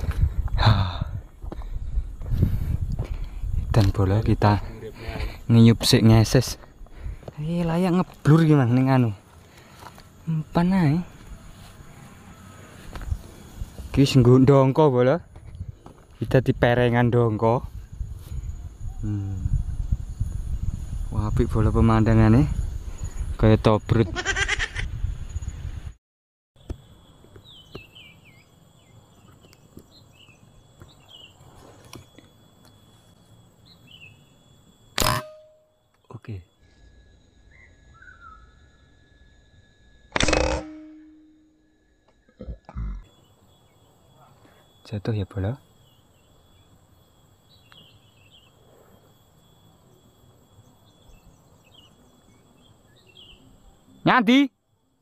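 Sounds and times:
high insect drone: 0.0 - 25.9, 26.6 - 55.0
faint steady high tone: 2.0 - 24.0, 26.6 - 55.0
high downward-sliding chirps: 26.6 - 54.8.

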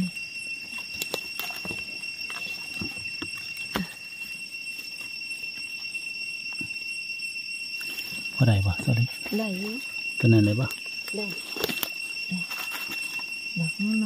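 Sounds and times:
insects droning: 0.0 - 14.0
footsteps crackling on dry leaves: 11.0 - 13.5.

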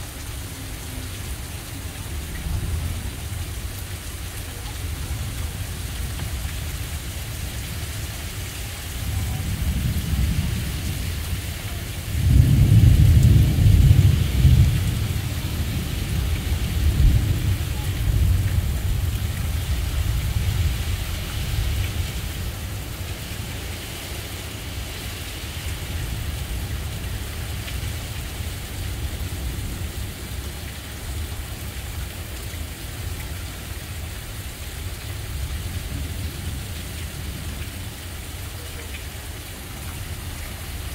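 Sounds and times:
heavy rain: 0.0 - 40.9
thunder rumble: 1.8 - 31.4.

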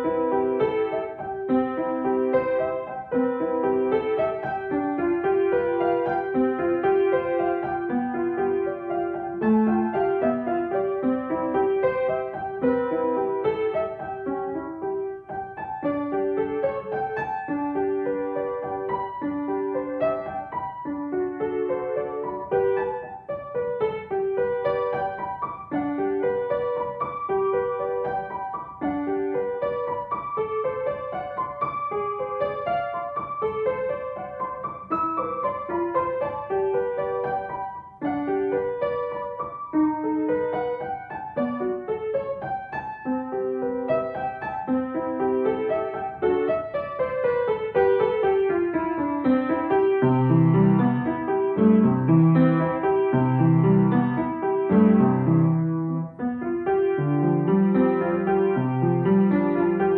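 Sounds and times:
solo piano: 0.0 - 59.9.

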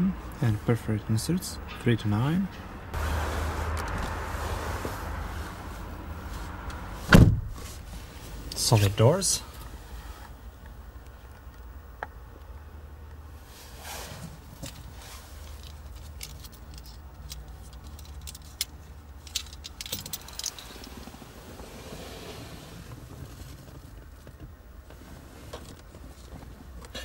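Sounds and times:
low steady rumble: 0.0 - 27.0
car key jingling and clicking: 15.5 - 21.0.

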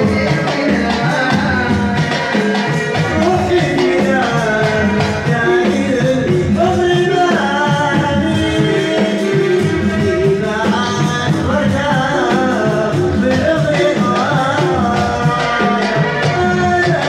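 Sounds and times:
instrumental backing with beat: 0.0 - 17.0
man singing into microphone: 0.0 - 17.0.

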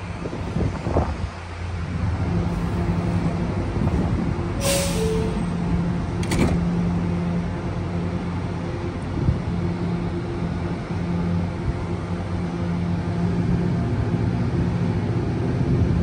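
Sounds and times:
subway train equipment hum: 0.0 - 16.0
air hiss from train doors: 2.5 - 5.5.

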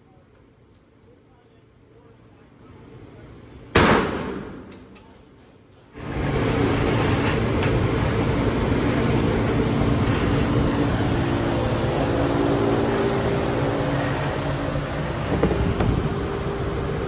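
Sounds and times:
steady mechanical drone: 0.0 - 17.0
low humming tones: 4.7 - 17.0.

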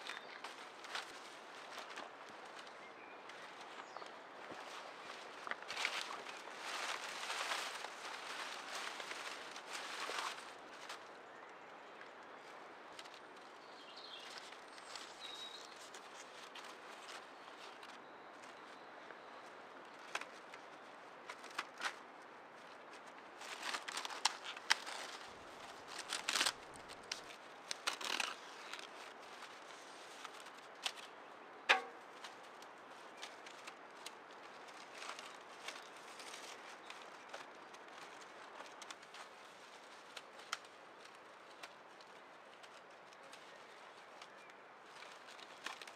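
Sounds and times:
dry reeds rustling and crackling: 0.0 - 45.9
reed stalk snapping: 25.9 - 28.9, 31.7 - 32.0.

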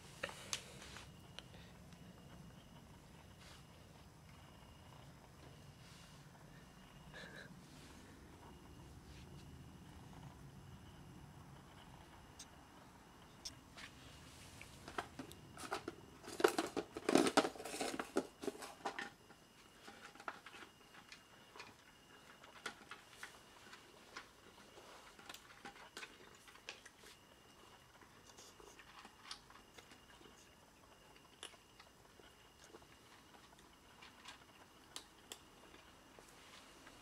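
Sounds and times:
cats crunching dry kibble: 14.5 - 37.0.

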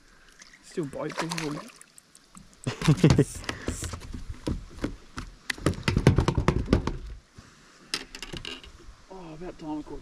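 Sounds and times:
knocks and taps on a boat: 2.9 - 7.1.

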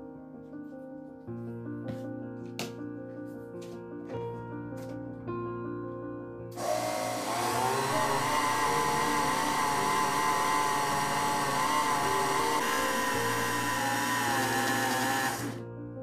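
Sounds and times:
blender motor whine: 6.6 - 15.6.

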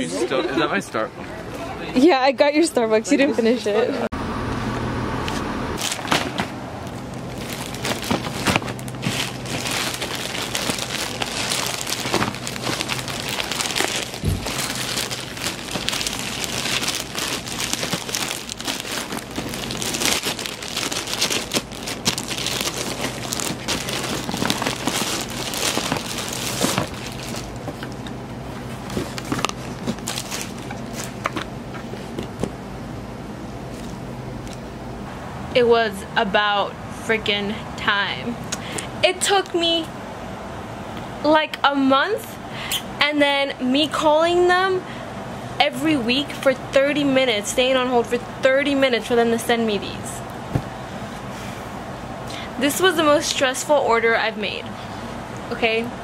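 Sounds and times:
plastic mailer bag crinkling: 7.0 - 31.4.

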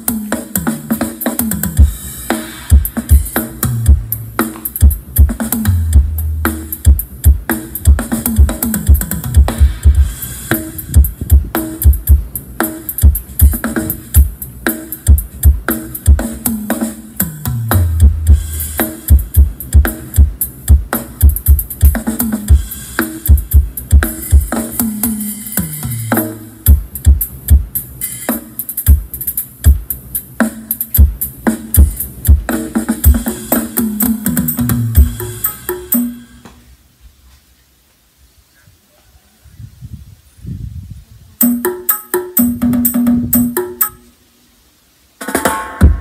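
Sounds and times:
loud dance music with heavy bass: 0.0 - 36.4.

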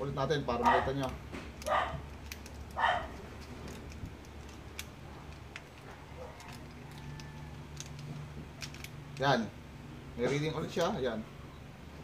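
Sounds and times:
steady low hum: 0.0 - 12.0
faint clicks and handling: 0.4 - 9.4.

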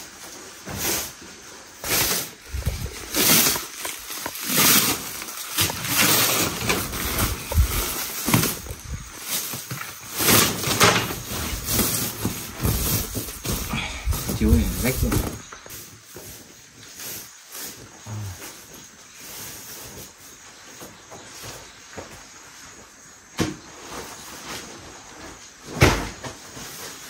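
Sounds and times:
sleeping mat rustling and flapping: 0.0 - 27.0.

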